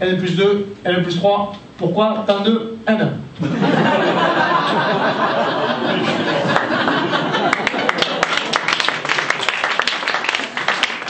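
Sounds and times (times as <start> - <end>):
audience laughing: 3.4 - 9.1
audience applause: 5.7 - 11.0.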